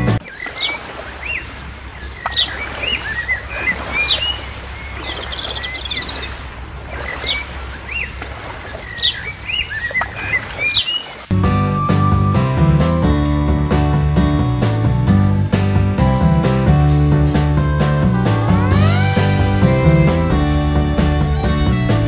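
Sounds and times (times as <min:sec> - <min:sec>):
bird trill: 0:00.2 - 0:06.4, 0:07.0 - 0:11.2.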